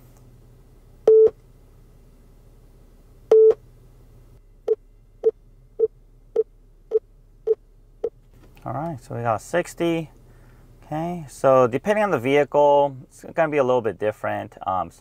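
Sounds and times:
long calibration beeps: 1.1s - 1.4s, 3.3s - 3.6s
short beeps: 1.1s - 1.4s, 3.3s - 3.6s.

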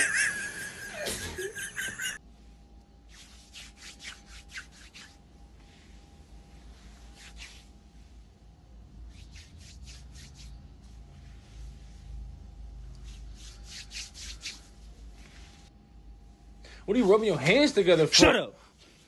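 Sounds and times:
hands rubbing together: 3.1s - 5.2s, 6.6s - 7.8s, 9.0s - 12.1s, 12.9s - 15.7s.

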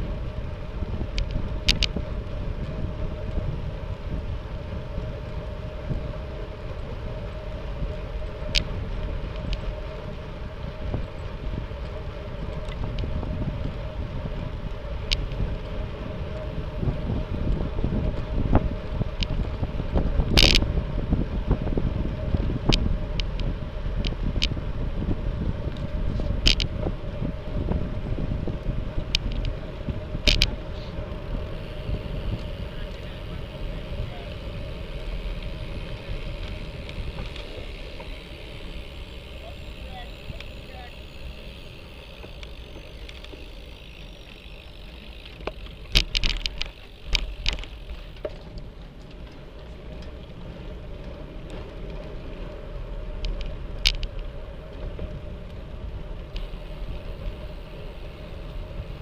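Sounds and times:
wind rumbling on microphone: 0.0s - 59.0s
sharp clicks and rattles: 1.0s - 3.4s, 19.1s - 20.7s, 25.7s - 26.8s, 29.0s - 55.6s, 56.2s - 59.0s.

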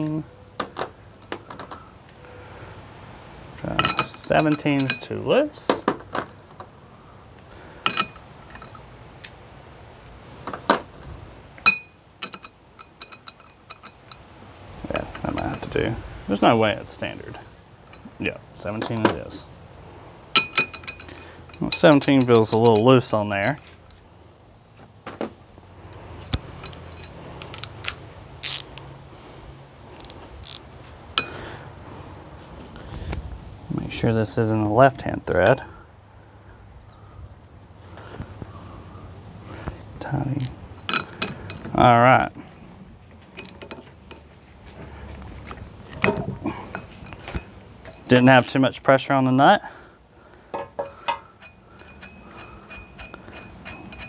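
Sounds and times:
steel sockets clinking: 3.6s - 6.2s, 7.8s - 8.8s, 11.6s - 14.3s, 20.3s - 23.7s, 26.5s - 28.9s, 30.0s - 31.4s, 40.3s - 41.8s, 43.3s - 44.3s, 45.9s - 48.2s, 50.5s - 54.0s.

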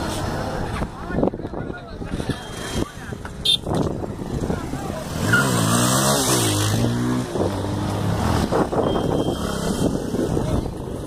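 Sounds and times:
motorcycle engine revving: 3.9s - 11.0s.

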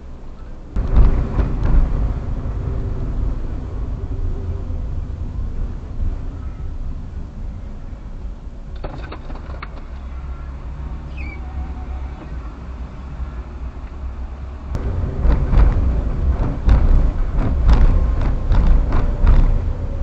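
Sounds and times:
car engine and tyres rumbling: 0.0s - 20.0s
irregular thumps and knocks: 0.8s - 2.5s, 14.8s - 19.8s.

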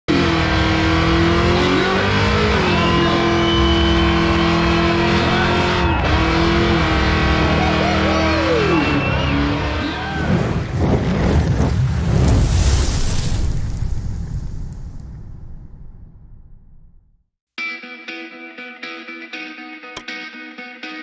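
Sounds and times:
truck engine revving: 0.1s - 11.8s.

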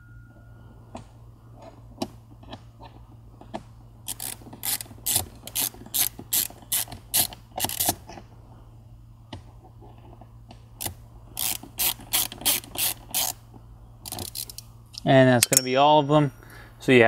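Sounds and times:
ratcheting screwdriver clicking: 4.1s - 8.0s, 11.4s - 13.4s, 14.1s - 15.6s.

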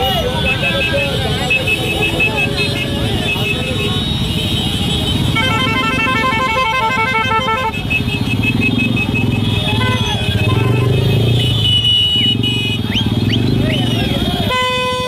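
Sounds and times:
crowd voices: 0.0s - 15.0s
horn beeping rapidly: 0.0s - 15.0s
motorcycles running: 0.0s - 15.0s
high held horn tone: 1.5s - 12.8s.

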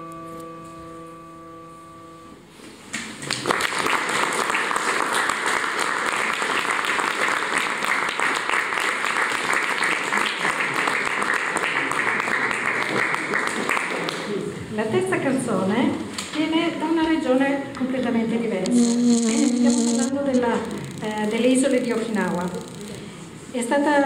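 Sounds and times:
electronic keyboard chord: 0.0s - 2.5s
audience applause: 3.2s - 14.5s.

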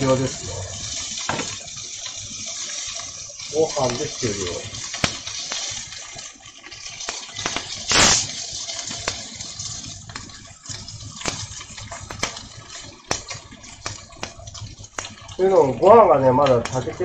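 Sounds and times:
chicken sizzling in oil: 0.0s - 17.0s
oil popping and crackling: 0.0s - 17.0s
brief loud hiss: 7.5s - 8.4s.

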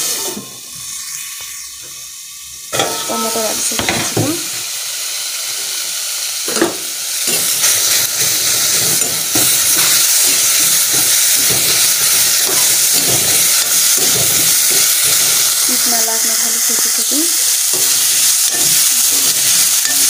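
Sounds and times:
vegetables sizzling in hot oil: 0.0s - 20.0s
metal spoon scraping a pan: 2.7s - 4.0s, 16.6s - 20.0s.

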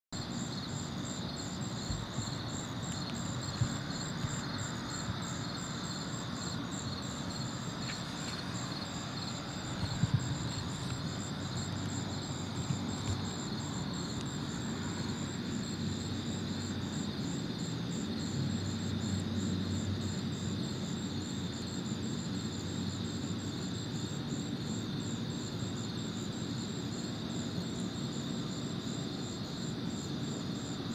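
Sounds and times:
low steady rumble: 0.2s - 17.1s
night insects trilling: 0.2s - 30.9s.

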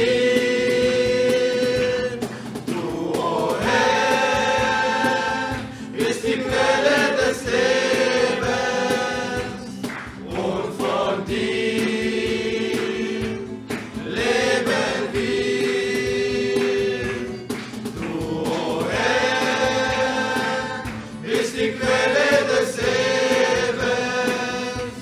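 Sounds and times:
choir singing: 0.0s - 25.0s.

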